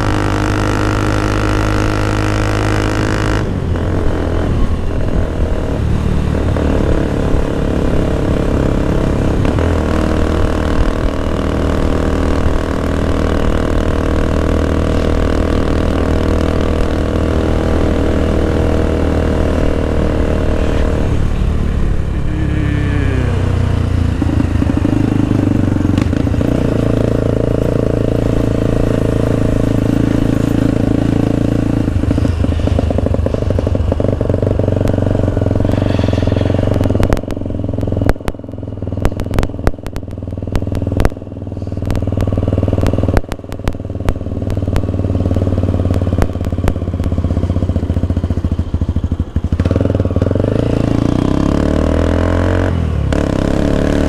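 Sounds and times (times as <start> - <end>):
engine clattering and crackling: 0.0 - 22.3, 23.5 - 54.0
motorcycle engine running: 0.0 - 54.0.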